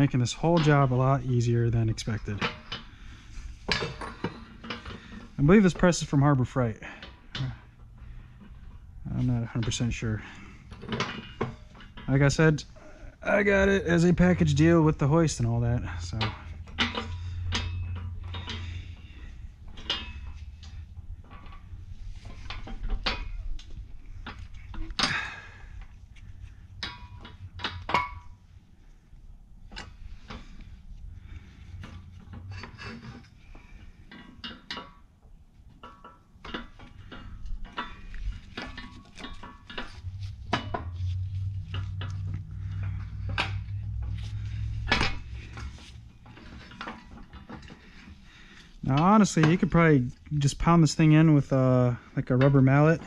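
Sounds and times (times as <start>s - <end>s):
metal parts clinking and knocking: 3.6s - 6.1s, 8.4s - 12.6s, 15.3s - 26.0s, 35.7s - 51.4s.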